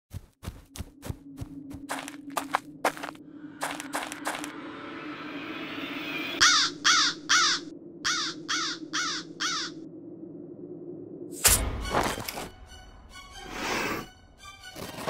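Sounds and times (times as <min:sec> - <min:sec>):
steady low drone: 0:00.9 - 0:14.6
crow cawing: 0:06.4 - 0:09.8.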